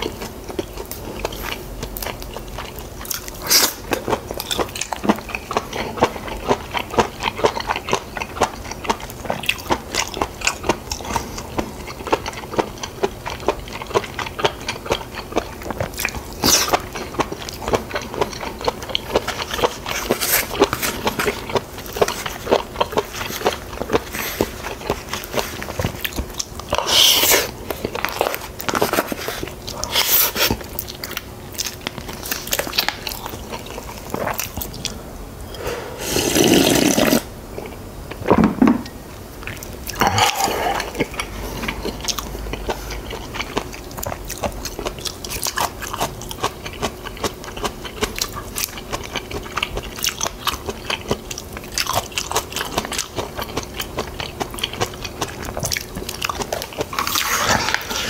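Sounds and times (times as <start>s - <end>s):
person chewing and crunching: 0.0s - 38.2s, 39.4s - 58.0s
wet mouth sounds: 13.9s - 37.8s, 39.4s - 58.0s.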